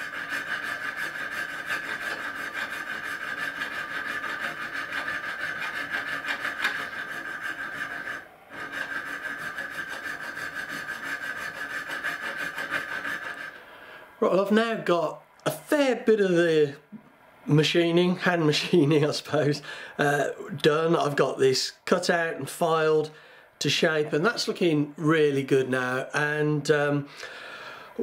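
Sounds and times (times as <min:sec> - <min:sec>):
hand file rasping on metal: 0:00.0 - 0:13.6.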